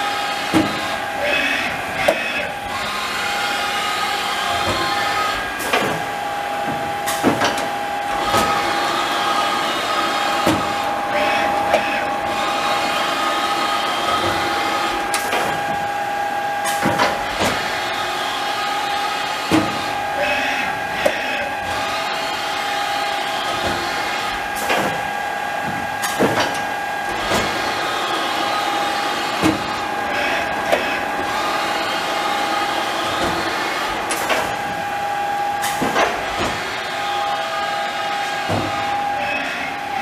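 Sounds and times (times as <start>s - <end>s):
lathe spindle whine: 0.0s - 40.0s
sharp clicks and knocks: 4.5s - 8.7s, 23.4s - 36.8s.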